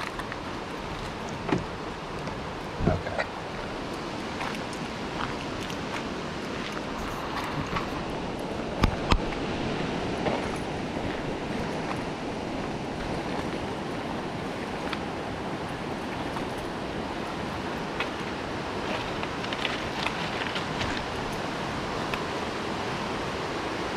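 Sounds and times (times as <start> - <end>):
river rushing: 0.0 - 23.9.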